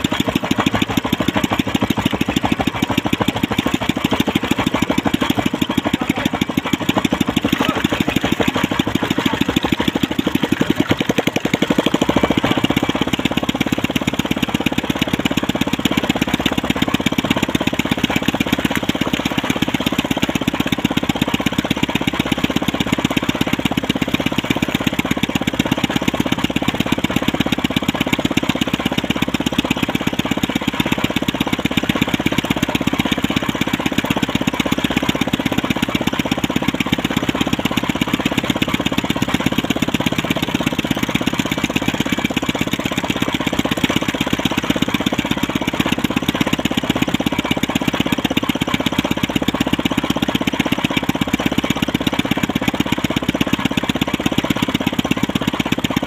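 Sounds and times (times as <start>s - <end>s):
boat engine idling: 0.0s - 56.0s.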